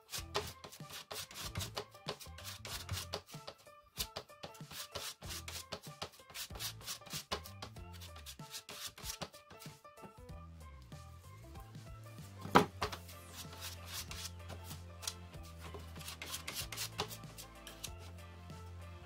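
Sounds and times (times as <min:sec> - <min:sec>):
background music: 0:00.0 - 0:19.0
palette knife scraping paint: 0:00.1 - 0:03.4, 0:04.1 - 0:09.2, 0:12.9 - 0:14.8, 0:15.4 - 0:18.1.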